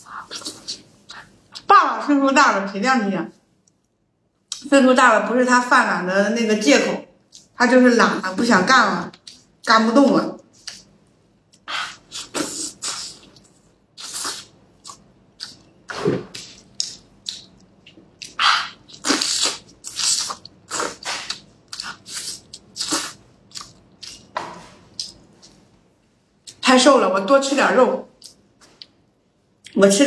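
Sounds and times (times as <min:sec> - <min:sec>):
person chewing and biting meat: 0:11.8 - 0:25.6.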